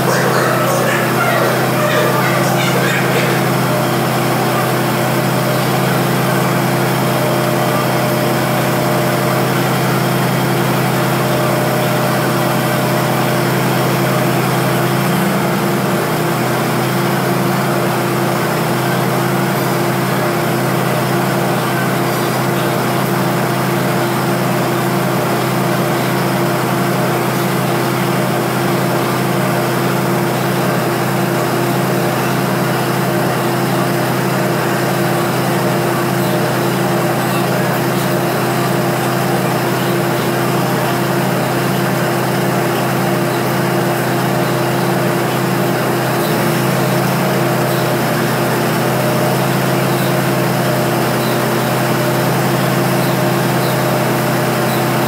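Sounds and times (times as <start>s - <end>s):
diesel train engine idling: 0.0s - 4.7s.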